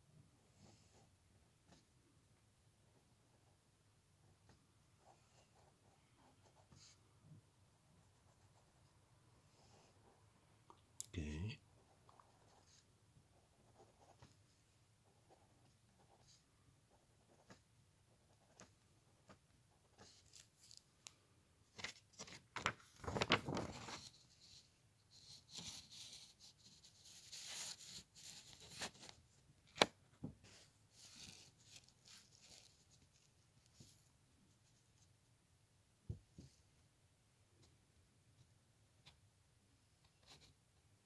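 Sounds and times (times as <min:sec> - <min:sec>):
paper rustling and crinkling: 0:21.7 - 0:24.5.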